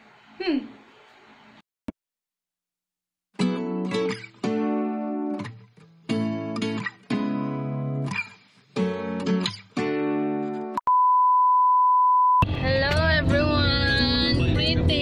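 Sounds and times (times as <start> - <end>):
strummed acoustic guitar: 3.4 - 10.8
test-tone beep: 10.8 - 12.4.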